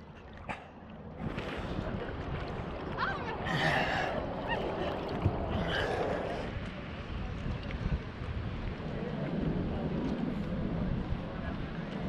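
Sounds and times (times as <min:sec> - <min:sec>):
water sloshing and splashing: 0:00.0 - 0:07.8.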